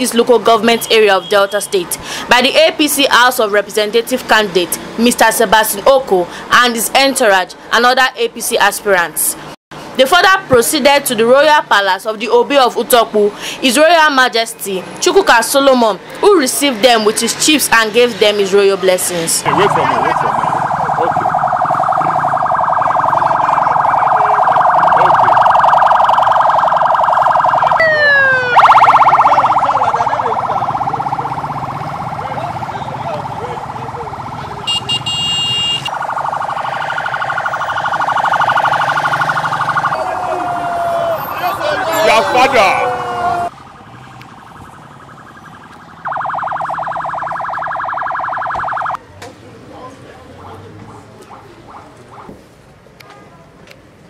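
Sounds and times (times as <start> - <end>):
siren warbling: 19.4 - 40.5, 41.1 - 49.0.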